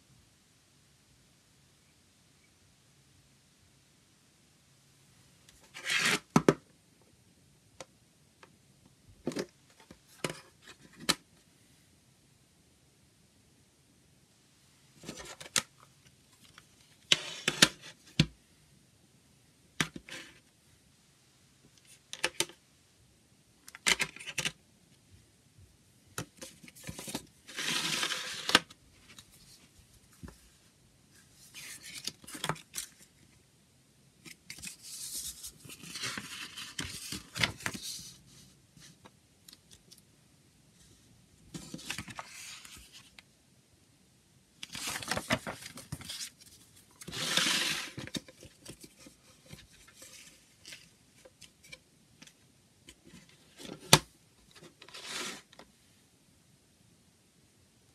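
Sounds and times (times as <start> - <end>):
paper rustling: 26.4 - 30.6, 34.3 - 39.0, 44.6 - 50.9.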